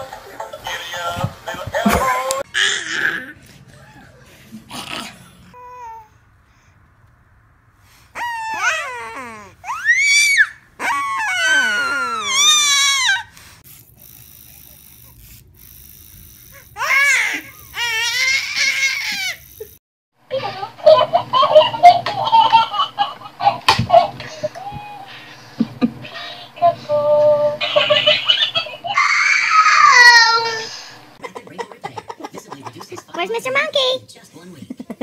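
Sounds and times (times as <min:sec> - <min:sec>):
babies squealing and laughing: 0:08.2 - 0:13.3, 0:16.8 - 0:19.8, 0:27.5 - 0:30.8.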